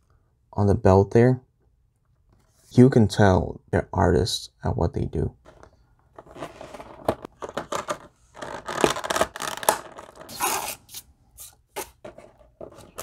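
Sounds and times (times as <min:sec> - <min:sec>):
plastic tray scraping and knocking: 0:05.5 - 0:10.3, 0:12.0 - 0:13.0.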